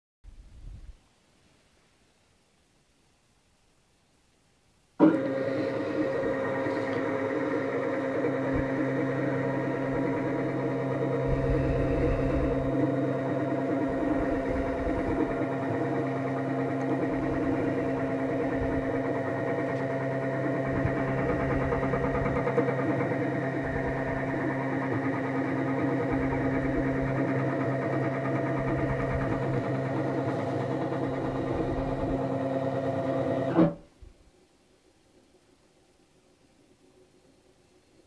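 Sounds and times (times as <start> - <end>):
stepper motors humming and whining: 5.0 - 33.8.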